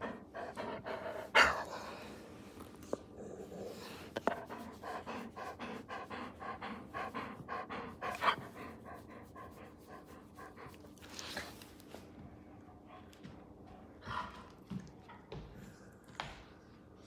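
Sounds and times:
rapid panting: 0.0 - 2.1, 4.0 - 11.1.

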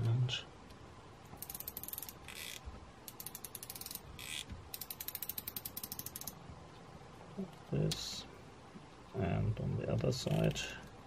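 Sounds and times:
bit ratchet clicking: 1.4 - 6.4
ratchet rasps: 1.4 - 6.4.

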